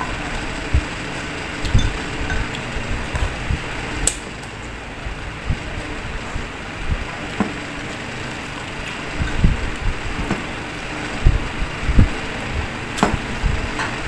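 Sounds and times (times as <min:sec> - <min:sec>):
soft low thumps: 0:05.1 - 0:07.2, 0:09.1 - 0:10.5, 0:11.2 - 0:13.8.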